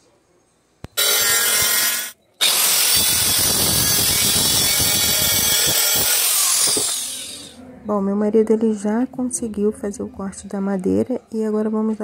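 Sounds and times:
electric saw cutting wood: 1.0s - 7.6s.

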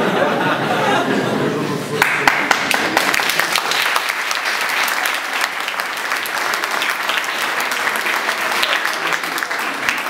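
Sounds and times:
audience applauding: 2.0s - 10.0s.

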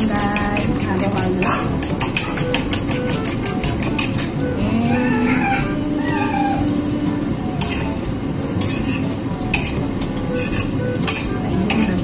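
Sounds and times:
utensil scraping a ceramic bowl: 0.0s - 4.4s, 7.6s - 8.0s, 8.6s - 12.0s.

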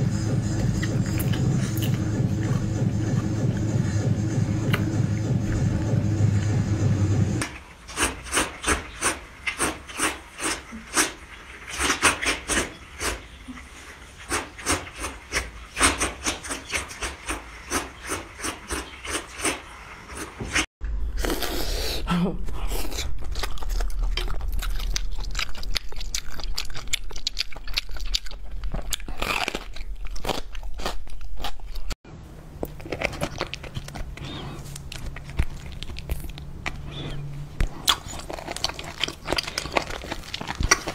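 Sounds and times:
low hum: 0.0s - 7.4s
noodles being slurped: 7.4s - 22.0s, 32.7s - 40.9s
food chewing smacks: 22.9s - 31.9s, 32.6s - 40.9s.

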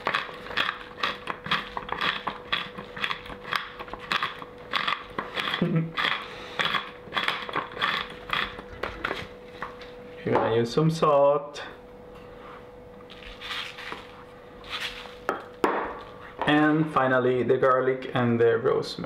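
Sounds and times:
pepper mill grinding: 0.0s - 9.2s.

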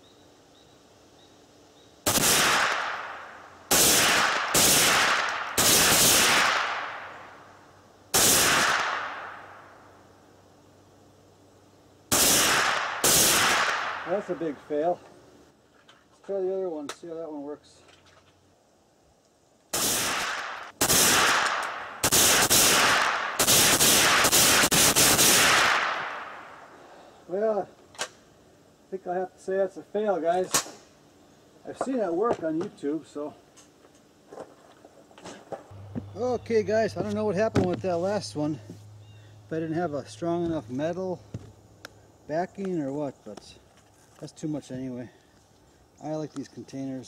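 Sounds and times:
echoing gunshots: 2.0s - 7.4s, 8.1s - 9.8s, 12.1s - 14.6s, 19.7s - 26.7s.

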